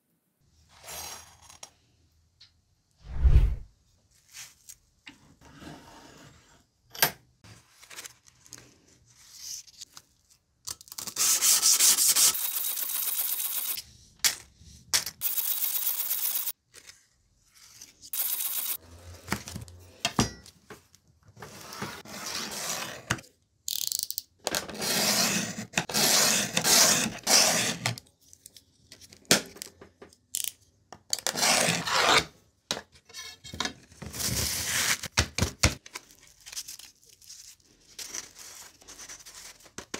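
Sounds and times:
sandpaper rubbing and scraping: 11.1 - 13.8.

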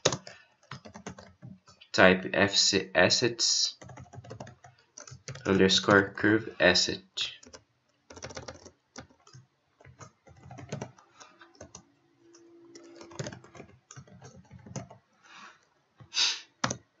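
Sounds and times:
keyboard typing: 0.0 - 1.9, 3.8 - 5.6, 7.2 - 16.9.

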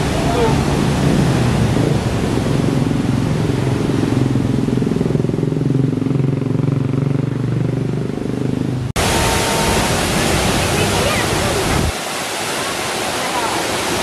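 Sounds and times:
waterfall rushing: 0.0 - 4.7, 9.0 - 14.0.

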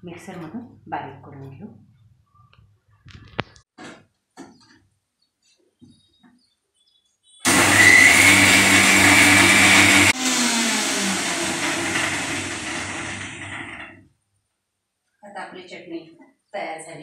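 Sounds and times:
mixer grinder whining: 7.5 - 14.0.

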